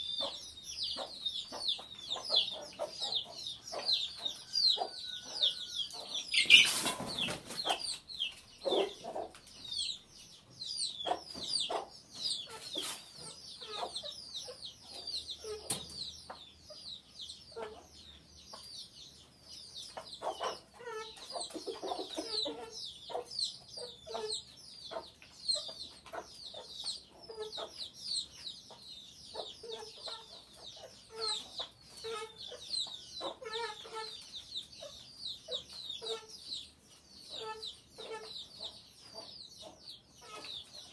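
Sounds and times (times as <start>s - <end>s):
chickens clucking: 0.0s - 40.9s
chicks peeping: 0.0s - 40.9s.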